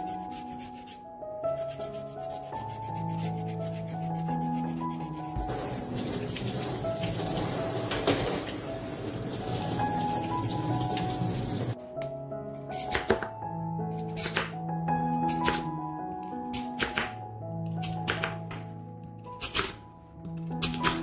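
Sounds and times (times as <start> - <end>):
tap water splashing in steel sink: 5.4 - 11.8.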